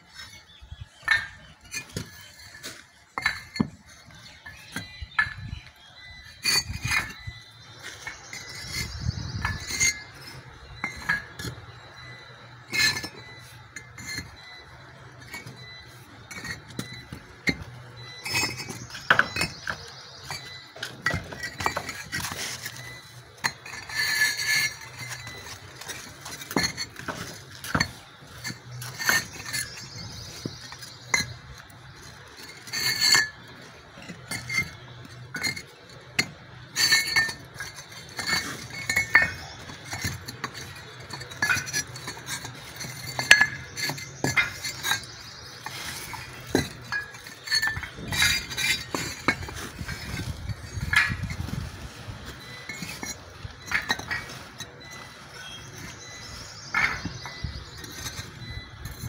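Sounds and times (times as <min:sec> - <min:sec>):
bricks clinking together: 0:00.1 - 0:59.0.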